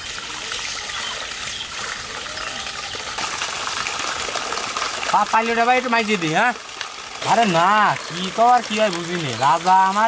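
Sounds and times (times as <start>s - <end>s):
water gushing and splashing: 0.0s - 10.0s.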